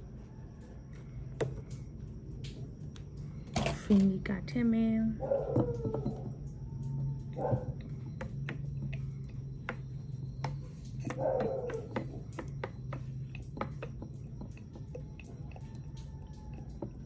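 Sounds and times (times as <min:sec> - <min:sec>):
steady low hum: 0:00.0 - 0:17.0
oil glugging from a bottle: 0:07.3 - 0:17.0.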